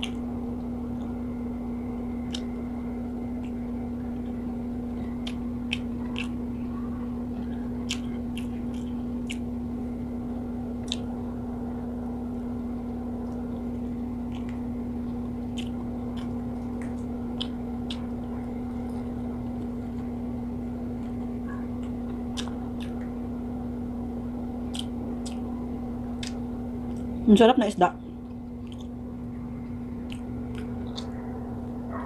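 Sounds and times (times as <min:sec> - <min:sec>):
person chewing food: 0:00.0 - 0:01.2, 0:01.8 - 0:11.2, 0:13.2 - 0:23.6, 0:24.5 - 0:27.2, 0:28.2 - 0:32.0
steady low hum: 0:00.0 - 0:32.0
mouth clicks: 0:05.0 - 0:06.4, 0:15.2 - 0:18.2, 0:24.7 - 0:25.5.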